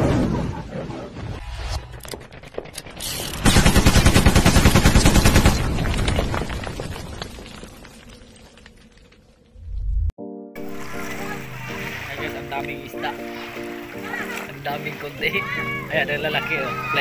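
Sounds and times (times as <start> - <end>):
machine-gun fire: 3.4 - 5.9.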